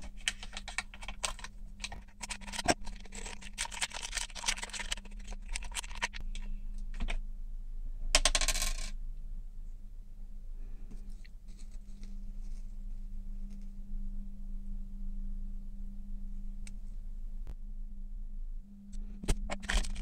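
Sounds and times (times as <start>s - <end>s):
foil bags crinkling: 0.0s - 6.5s, 19.5s - 20.0s
faint low hum: 0.0s - 20.0s.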